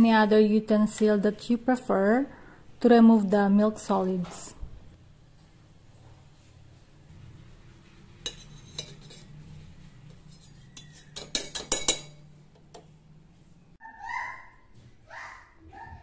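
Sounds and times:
tea strainer clinking against pots: 8.3 - 9.3, 10.3 - 12.2.

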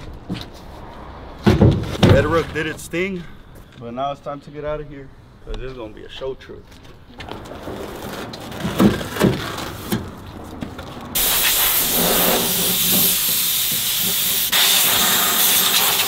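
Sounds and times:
compressed air blow gun hissing: 11.2 - 16.0.

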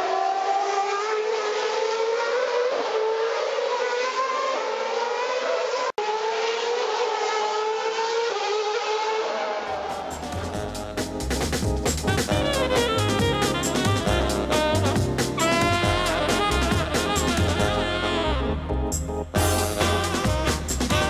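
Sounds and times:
racing car engine at high revs: 0.0 - 13.5.

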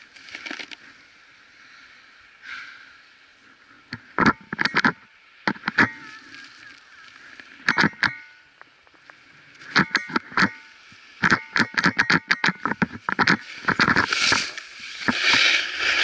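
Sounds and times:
skis gliding hiss: 0.0 - 3.8, 6.0 - 7.6, 13.4 - 16.0
skis scraping on hard snow: 12.8 - 16.0.

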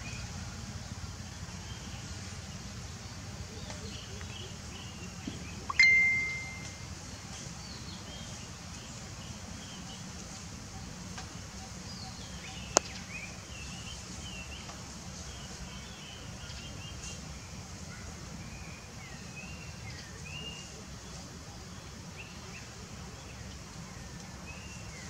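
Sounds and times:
faint bird chirps: 2.9 - 10.1
sharp ringing ping: 5.7 - 6.8.

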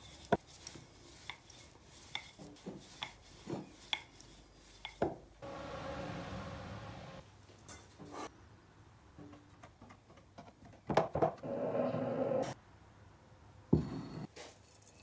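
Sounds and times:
rolling pin rolling dough: 0.0 - 5.3.

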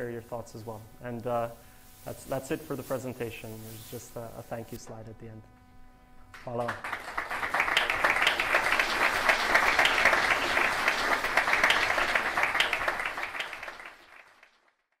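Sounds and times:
audience applauding: 6.4 - 14.8.

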